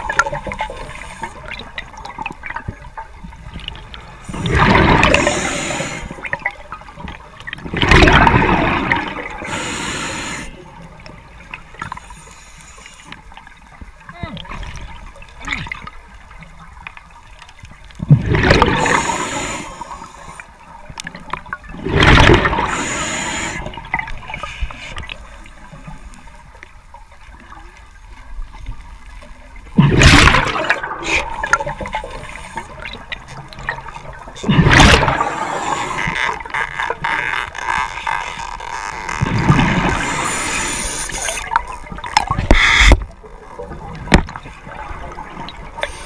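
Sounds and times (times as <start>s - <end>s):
underwater gurgling: 0.0s - 46.0s
exhaled bubbles rushing: 4.3s - 6.6s, 7.6s - 9.5s, 18.0s - 19.2s, 21.7s - 22.8s, 29.8s - 36.5s, 39.2s - 43.0s.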